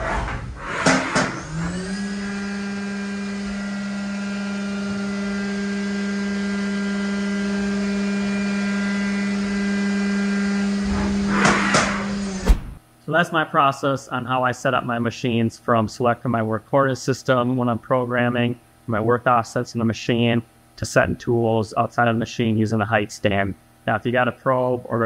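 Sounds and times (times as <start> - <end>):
short rush of noise: 10.8 - 12.8.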